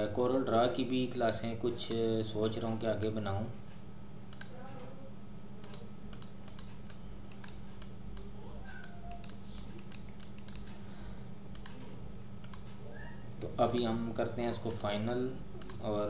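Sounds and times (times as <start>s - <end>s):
steady low hum: 0.0s - 16.0s
keyboard and mouse clicking: 4.3s - 4.6s, 5.6s - 10.8s, 11.5s - 11.8s, 12.4s - 12.8s, 13.6s - 14.0s, 14.6s - 15.0s, 15.6s - 15.9s.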